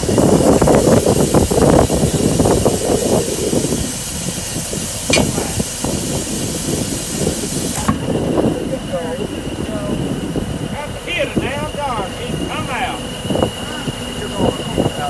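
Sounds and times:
compressed air hissing: 0:00.0 - 0:08.5
sharp pop: 0:05.1 - 0:05.6.

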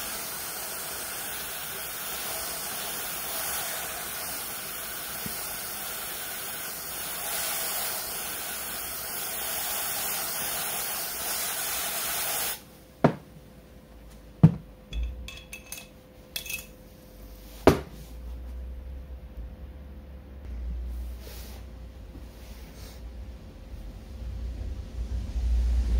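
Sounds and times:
aerosol spray hissing: 0:00.0 - 0:12.6.

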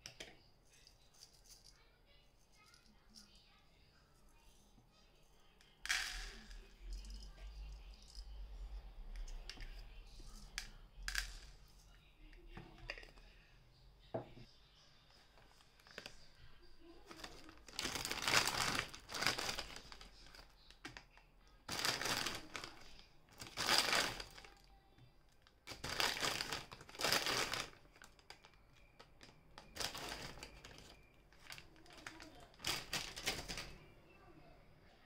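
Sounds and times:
plastic packet crinkling: 0:17.0 - 0:21.1, 0:21.7 - 0:24.7, 0:25.4 - 0:33.8.

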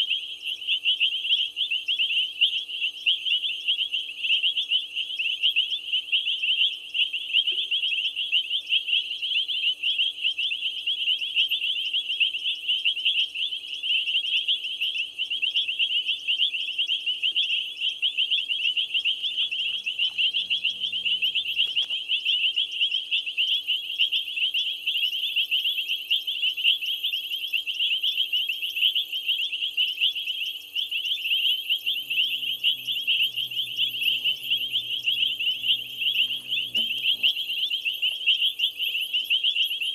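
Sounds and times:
shrill chorus of chirping callers: 0:08.1 - 0:39.9
faint low hum: 0:18.5 - 0:22.6, 0:30.8 - 0:39.4.

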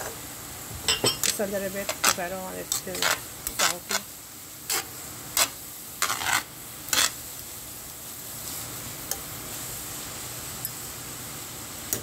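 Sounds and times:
noodles sizzling in a pan: 0:00.0 - 0:12.0
metal tongs scraping a pan: 0:00.9 - 0:04.1, 0:04.7 - 0:07.2.

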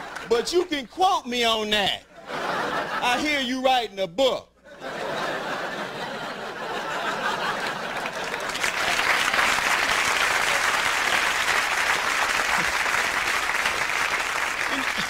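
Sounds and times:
audience applauding: 0:00.0 - 0:00.8, 0:06.9 - 0:15.0.

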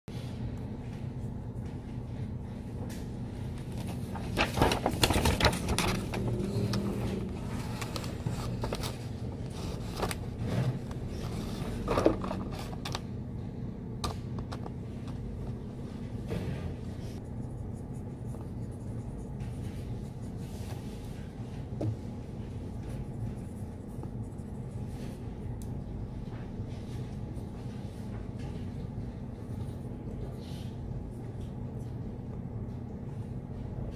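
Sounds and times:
low room hum: 0:00.1 - 0:33.9
paper rustling: 0:03.5 - 0:12.9.

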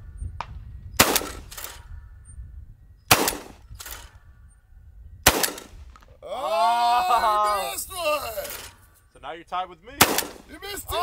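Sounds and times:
shotgun shots: 0:01.0 - 0:01.8, 0:03.1 - 0:04.1, 0:05.2 - 0:06.0, 0:10.0 - 0:10.6
faint gunshot echo: 0:05.2 - 0:06.0, 0:10.0 - 0:10.5.

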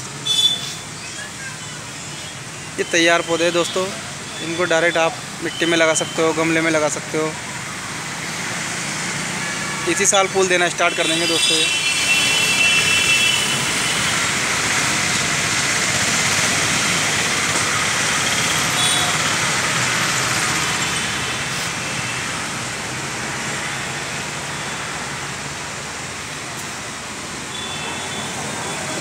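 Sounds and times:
road traffic hiss: 0:00.0 - 0:29.0.

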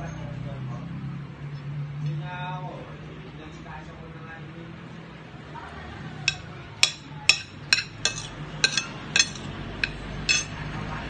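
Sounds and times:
metal spoon clinking on plate: 0:06.3 - 0:10.6.

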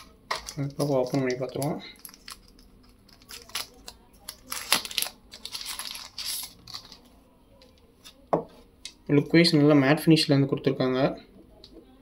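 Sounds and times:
plastic wrapping crinkling: 0:00.0 - 0:08.2.

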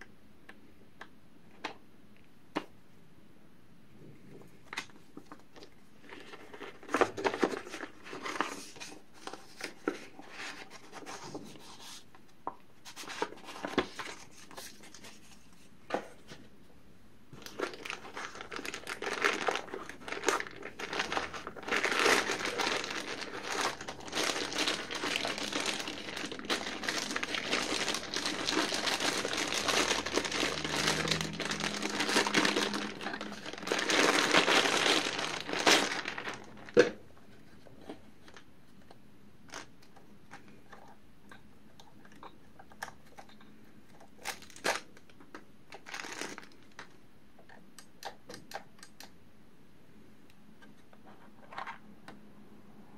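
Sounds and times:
plastic bag crinkling: 0:17.3 - 0:37.0, 0:39.5 - 0:40.9, 0:42.0 - 0:47.0.

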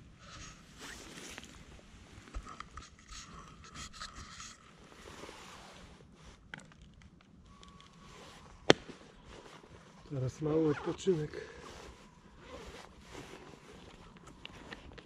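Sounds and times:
rustling and scuffing: 0:00.7 - 0:02.3, 0:08.0 - 0:15.0.

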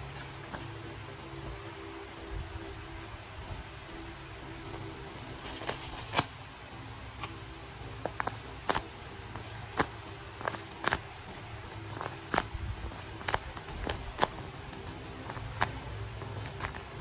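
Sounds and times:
paper and tape crinkling: 0:04.7 - 0:06.3, 0:15.2 - 0:17.0.

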